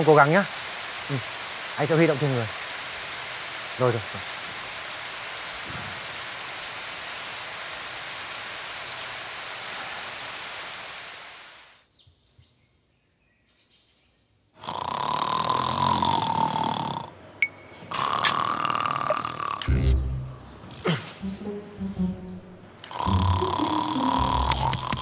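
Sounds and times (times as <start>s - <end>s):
steady rain falling: 0.0s - 11.8s, 18.0s - 25.0s
loud snoring with whistle: 14.6s - 17.1s, 17.9s - 20.1s, 22.8s - 25.0s.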